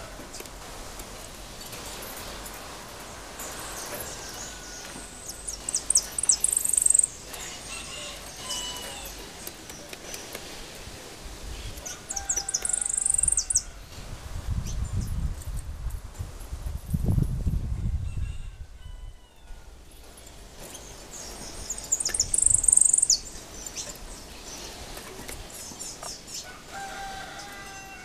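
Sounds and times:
lower whistled bird notes: 4.0s - 9.1s, 12.0s - 13.8s, 20.8s - 23.9s
bird singing high trills: 4.2s - 9.2s, 12.1s - 13.7s, 20.8s - 23.9s.

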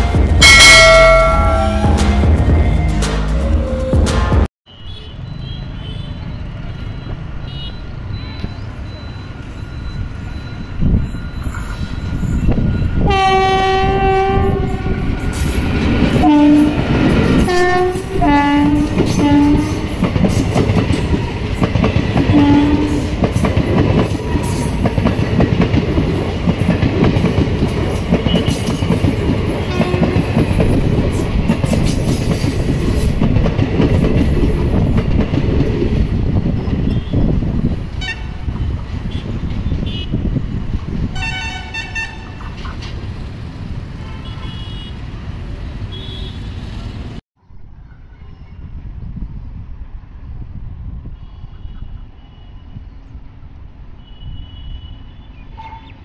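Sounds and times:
locomotive horn: 0.0s - 4.0s, 13.0s - 15.1s, 16.2s - 20.0s, 22.2s - 23.3s, 29.6s - 30.5s, 38.0s - 38.4s, 41.1s - 42.4s, 44.0s - 45.0s, 45.9s - 47.0s
train wheels rumbling on rails: 9.5s - 44.1s.

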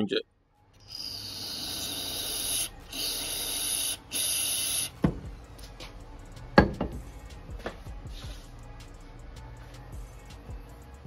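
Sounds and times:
sharp knocks: 6.6s - 7.0s.

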